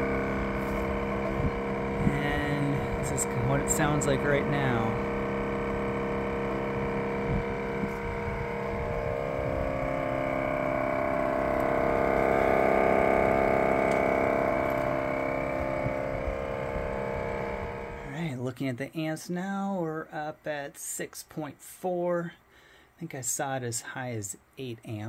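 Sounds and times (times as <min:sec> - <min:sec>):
compressor humming drone: 0:00.0 - 0:18.9.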